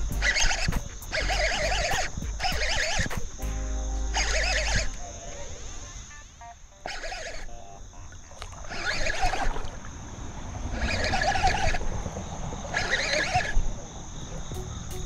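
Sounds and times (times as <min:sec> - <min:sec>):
fishing reel buzzing: 0:00.0 - 0:03.4, 0:04.1 - 0:05.0, 0:06.9 - 0:07.5, 0:08.7 - 0:09.4.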